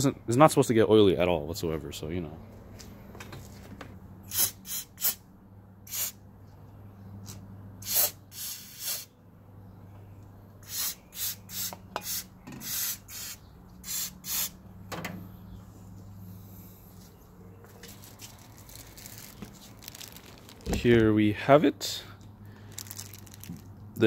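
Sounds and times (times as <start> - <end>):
aerosol spray hissing bursts: 5.9 - 6.2, 7.8 - 9.1, 10.6 - 14.6.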